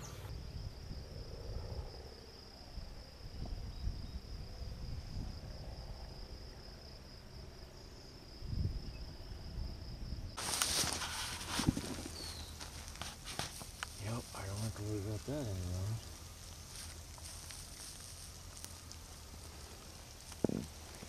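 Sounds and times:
high thin insect drone: 0:00.0 - 0:21.0
hiss with rustling clicks: 0:10.4 - 0:21.0
low uneven rumbling: 0:10.8 - 0:21.0.

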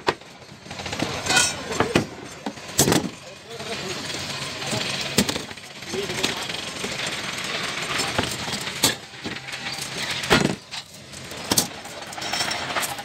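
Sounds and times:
steady background noise: 0:00.0 - 0:13.0
metallic clanks: 0:00.9 - 0:03.2.

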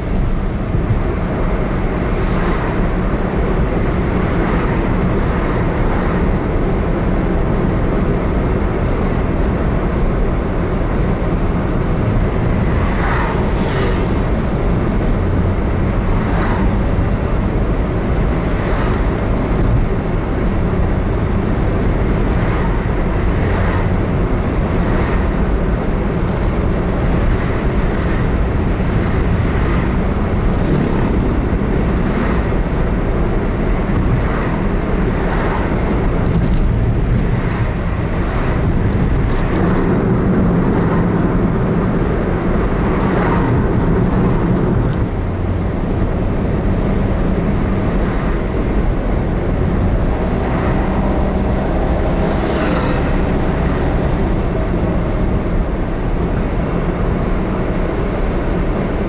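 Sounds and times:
car engine and tyre noise: 0:00.0 - 0:59.0.

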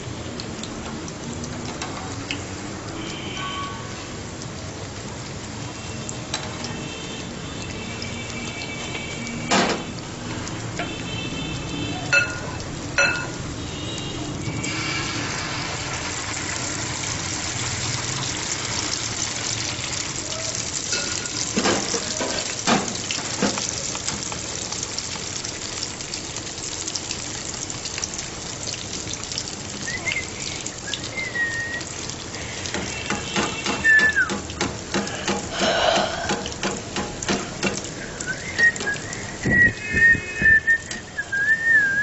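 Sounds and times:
batter frying with crackling sizzle: 0:00.0 - 0:42.0
metal tongs clinking on pan: 0:12.2 - 0:13.4, 0:20.9 - 0:23.7.

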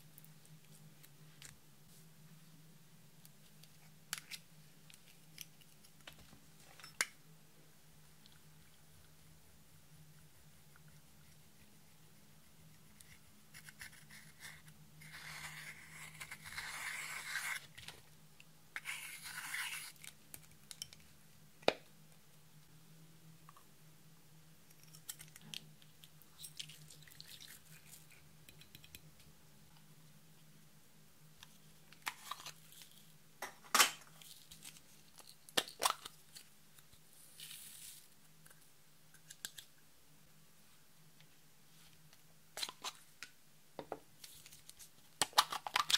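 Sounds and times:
metal tool scraping powder: 0:18.8 - 0:20.0.

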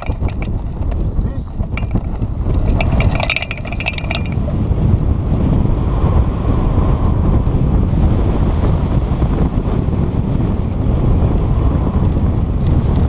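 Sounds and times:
clicks and knocks: 0:00.0 - 0:04.4
wind rushing over microphone: 0:00.0 - 0:13.0.

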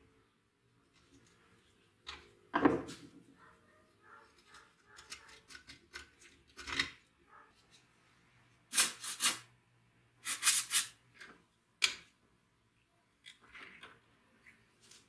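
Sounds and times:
aerosol spray can hissing: 0:10.2 - 0:10.9.

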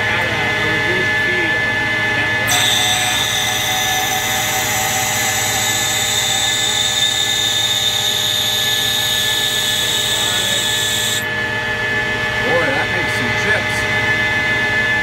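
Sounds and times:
lathe machine whine: 0:02.4 - 0:13.0.

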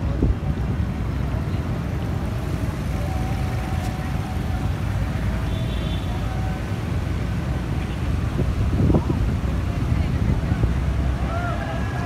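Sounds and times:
street traffic: 0:00.0 - 0:12.0
wind buffeting microphone: 0:07.9 - 0:12.0.

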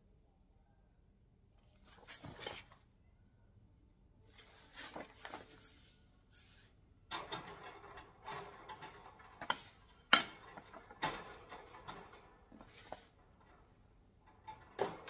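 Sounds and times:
metal wire parts clattering: 0:07.1 - 0:15.0.

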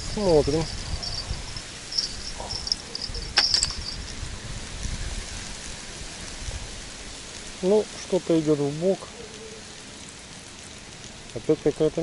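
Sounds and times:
insects chirping: 0:00.0 - 0:05.4
low uneven rumble: 0:00.0 - 0:12.0.

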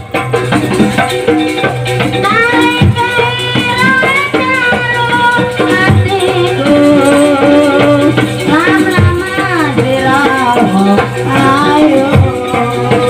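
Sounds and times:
deep beat: 0:03.7 - 0:13.0.

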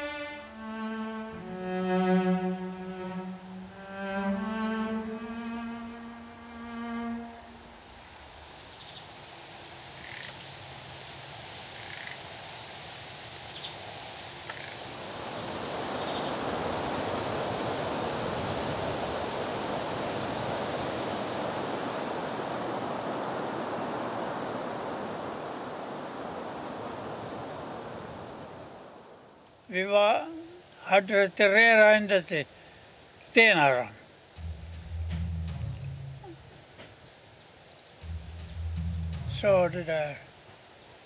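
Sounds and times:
held cello note: 0:00.0 - 0:07.9, 0:34.4 - 0:36.6, 0:38.0 - 0:40.2
steady rushing sound: 0:34.4 - 0:36.5, 0:38.0 - 0:40.2.

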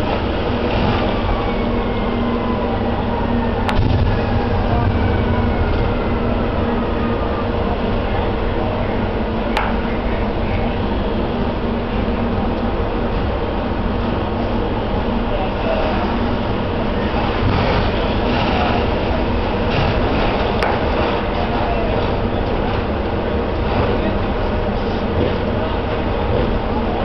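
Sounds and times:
faint downward whine: 0:00.0 - 0:13.0
low drone of fire apparatus: 0:00.0 - 0:27.0.

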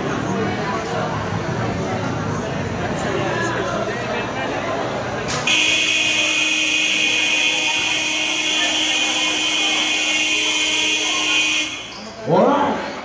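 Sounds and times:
buzzer blast: 0:05.5 - 0:12.1.

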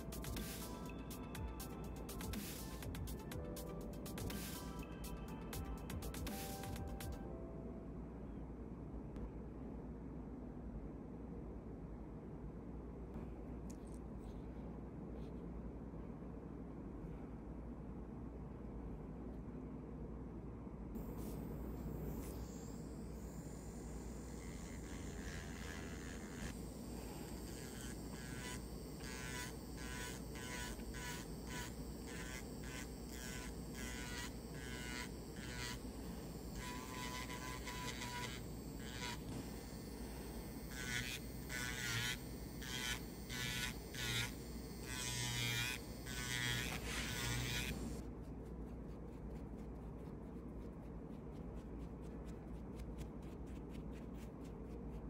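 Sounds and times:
low steady hum: 0:00.0 - 0:55.0
nail filing strokes: 0:21.0 - 0:55.0.

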